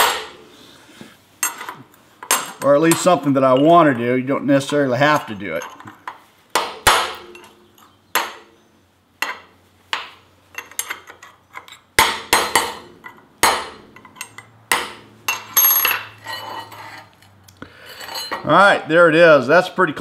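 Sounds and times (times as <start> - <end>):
hammer striking steel: 0.0 - 0.4, 6.5 - 7.6, 12.0 - 16.2.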